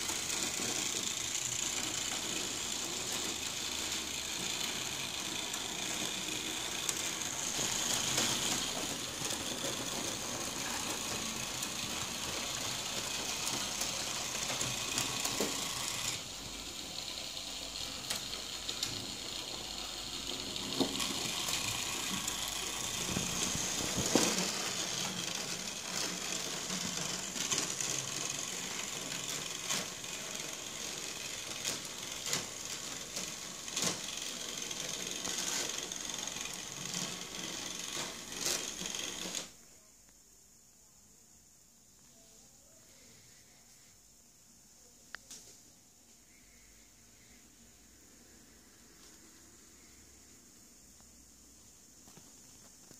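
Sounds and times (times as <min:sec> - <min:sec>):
model train electric motor whine: 0:00.0 - 0:39.5.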